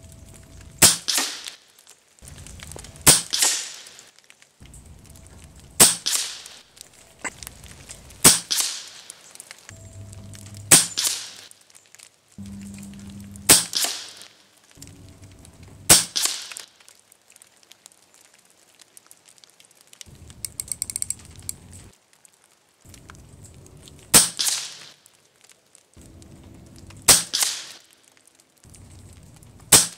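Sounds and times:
air rifle shots: 0:00.8 - 0:01.6, 0:03.1 - 0:04.0, 0:05.8 - 0:06.6, 0:08.2 - 0:09.0, 0:10.7 - 0:11.5, 0:13.5 - 0:14.3, 0:15.9 - 0:16.6, 0:27.1 - 0:27.8
scope turret clicks: 0:20.4 - 0:21.7.

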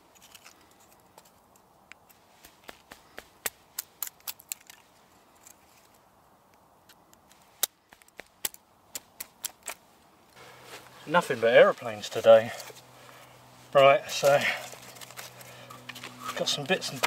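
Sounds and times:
knife splitting wood sticks: 0:00.0 - 0:05.9, 0:06.9 - 0:09.8, 0:14.1 - 0:17.0.

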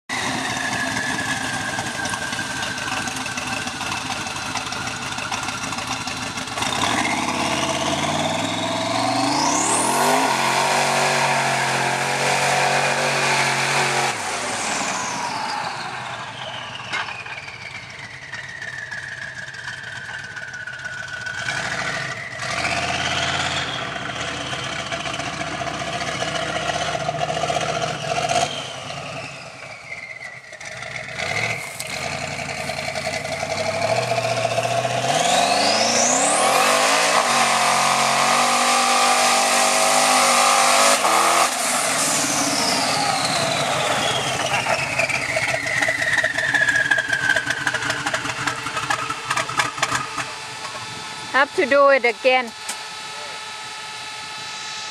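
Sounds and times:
truck engine revving in mud: 0:06.4 - 0:16.8, 0:21.2 - 0:51.8.

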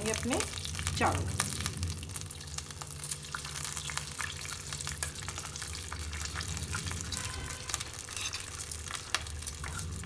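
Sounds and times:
crackle of small clicks from pan: 0:02.4 - 0:06.9, 0:07.7 - 0:09.8.

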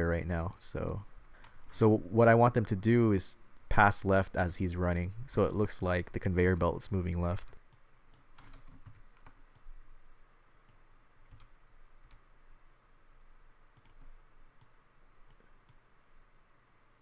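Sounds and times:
computer clicks: 0:07.4 - 0:09.7, 0:10.7 - 0:12.2, 0:13.7 - 0:15.8.

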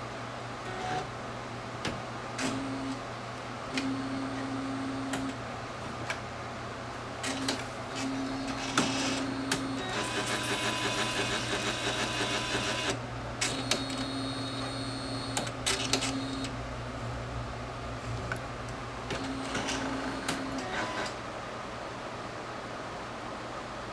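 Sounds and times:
high-pitched noisy printer sound: 0:00.6 - 0:01.2, 0:01.8 - 0:06.1, 0:07.2 - 0:17.1, 0:19.0 - 0:21.4
printer motor whine: 0:02.4 - 0:03.0, 0:03.7 - 0:05.4, 0:07.2 - 0:16.6, 0:19.1 - 0:21.3.

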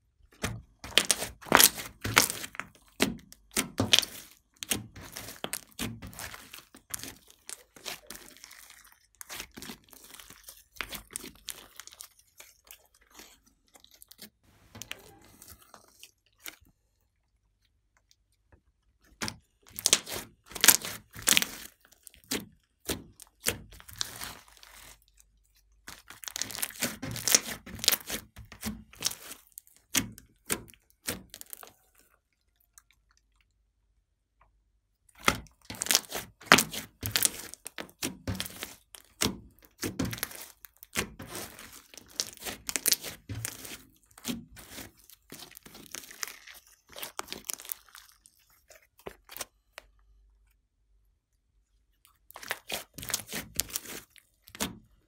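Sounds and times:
slime crackling and popping: 0:00.4 - 0:16.6, 0:19.2 - 0:32.0, 0:35.1 - 0:49.9, 0:52.1 - 0:54.9.

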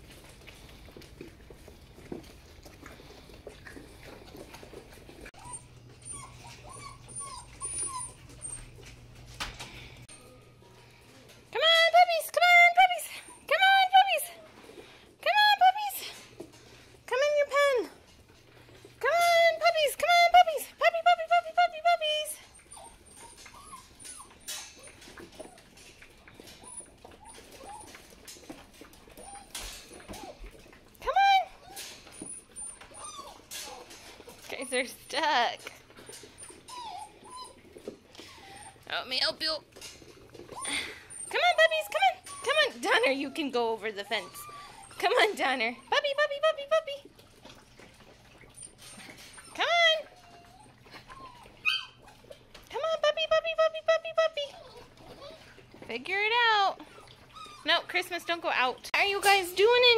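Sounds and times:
puppies whimpering: 0:03.0 - 0:09.3, 0:10.0 - 0:14.8, 0:21.0 - 0:59.9
puppies squeaking: 0:04.2 - 0:09.2, 0:21.6 - 0:30.7, 0:31.4 - 0:46.3, 0:48.1 - 0:52.6, 0:54.2 - 0:59.9.

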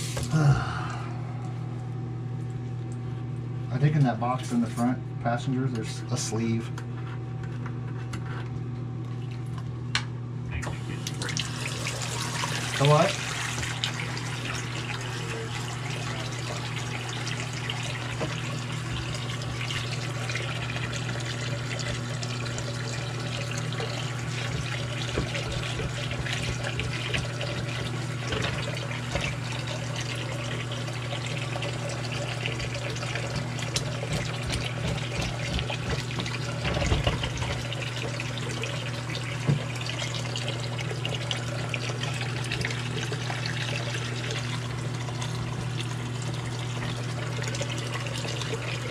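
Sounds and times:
faucet water running into sink: 0:10.6 - 0:48.9.

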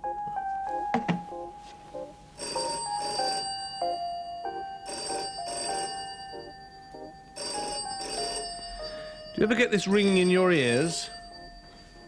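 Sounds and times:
quiet background music: 0:00.0 - 0:12.0
telephone bell double ring: 0:02.4 - 0:12.0.

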